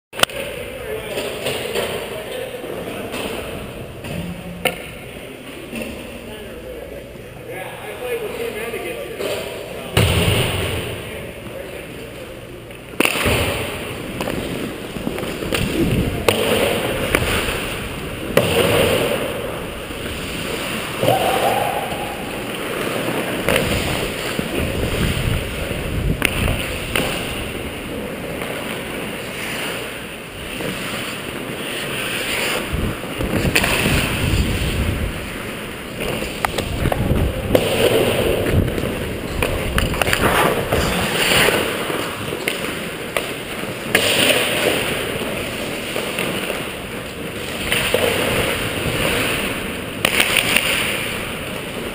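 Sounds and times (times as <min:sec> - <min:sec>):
stick and puck clacks: 0:00.2 - 0:02.4, 0:12.7 - 0:17.7, 0:22.3 - 0:27.6, 0:28.2 - 0:29.9, 0:30.5 - 0:34.7, 0:36.0 - 0:51.9
skates scraping on ice: 0:13.0 - 0:51.9.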